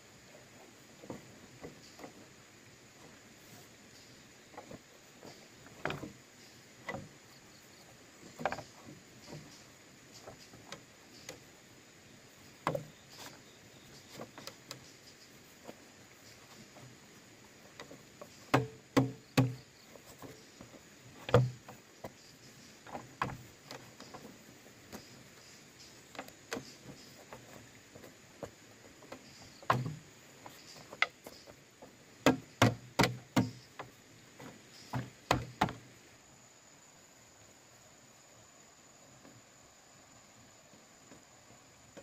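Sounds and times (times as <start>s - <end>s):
tool striking bamboo: 17.8s - 20.4s, 21.2s - 21.7s, 29.2s - 31.5s, 32.2s - 33.9s, 34.9s - 35.8s.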